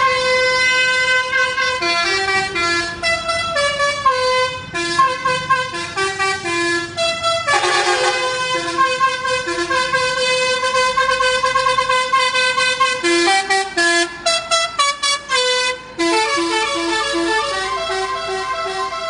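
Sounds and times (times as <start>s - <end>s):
musical air horn playing tune: 7.4s - 9.5s.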